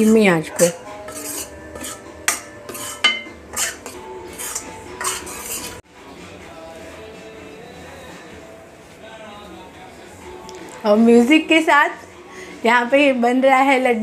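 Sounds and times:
spatula scraping metal pan: 0.0 - 5.8.

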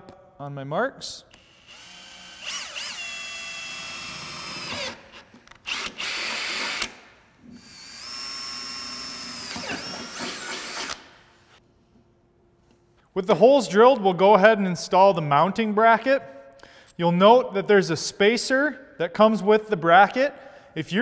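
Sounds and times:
cordless drill whining through metal: 1.4 - 11.6.

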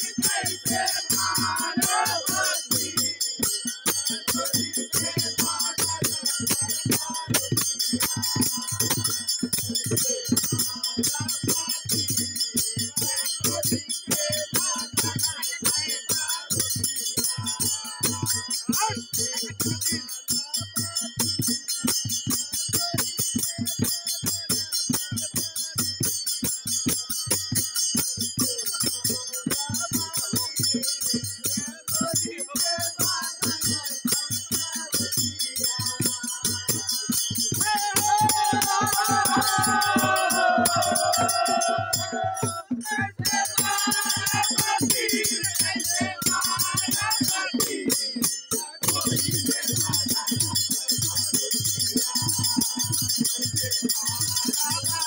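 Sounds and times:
drum beating fast rhythm: 0.0 - 55.0
hand cymbals jingling: 0.0 - 55.0
men singing: 0.0 - 55.0.

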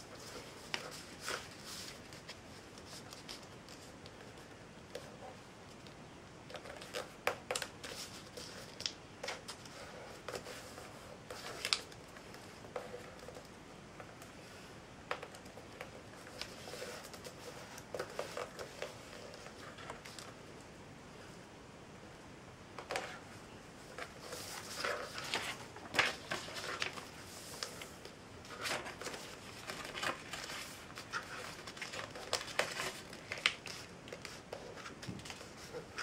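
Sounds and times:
paper folding and crinkling: 0.0 - 5.8, 6.5 - 14.3, 15.1 - 20.4, 23.8 - 36.0
paper crackles: 6.5 - 13.5, 23.9 - 36.0.

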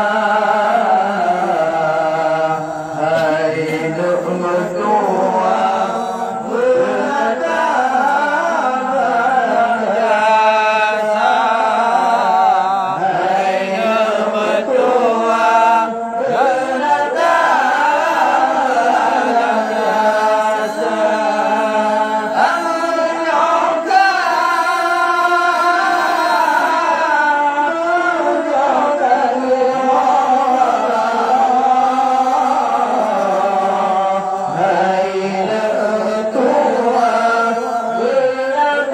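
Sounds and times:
man singing into microphone: 0.0 - 38.9.

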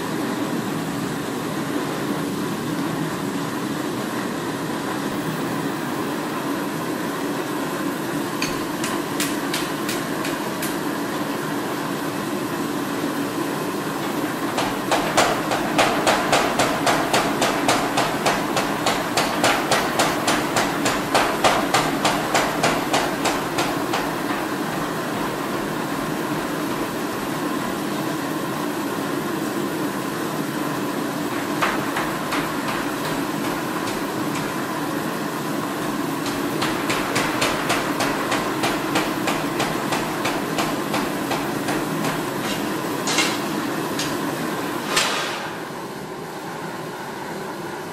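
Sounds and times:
hammer striking hot metal: 8.4 - 10.8, 14.0 - 25.0, 31.4 - 34.7, 36.2 - 44.2.

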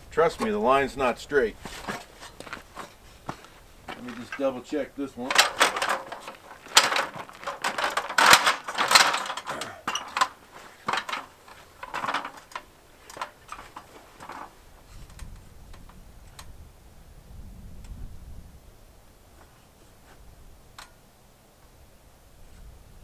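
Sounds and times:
stepladder clattering and clicking: 1.7 - 15.3.

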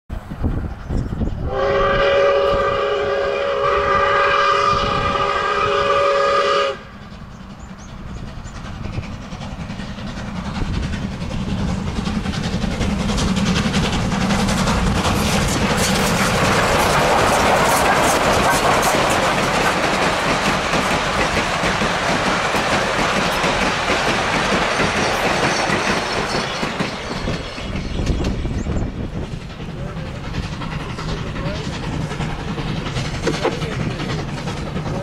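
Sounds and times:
train rumble: 0.1 - 35.0
steam whistle chord: 1.4 - 6.9
wheels clicking over rail joints: 7.0 - 35.0.

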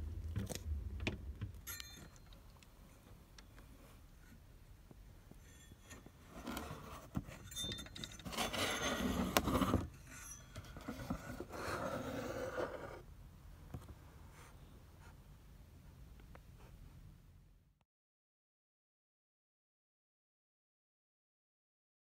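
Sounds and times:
metal heatsink scraping and clinking: 5.4 - 11.8.

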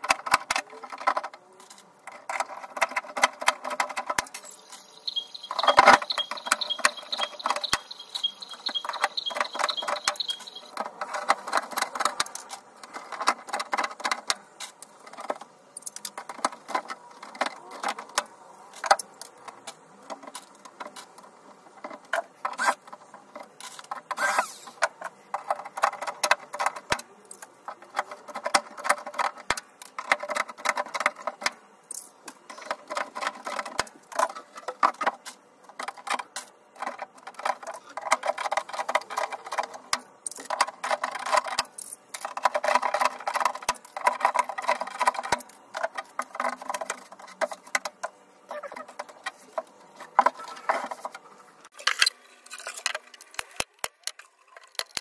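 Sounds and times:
high-pitched whine: 4.3 - 10.8
small mechanical clicks and taps: 51.8 - 55.0.

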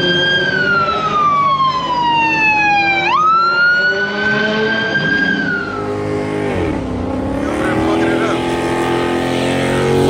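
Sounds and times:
police siren wailing: 0.0 - 6.2.

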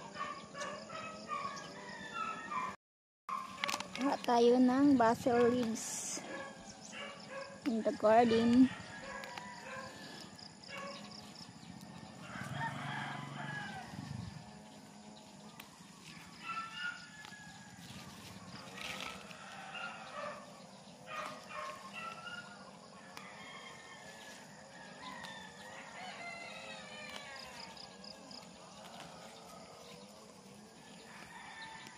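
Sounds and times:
rooster crowing: 0.8 - 2.8, 8.0 - 11.2, 11.9 - 14.6, 16.4 - 31.9.

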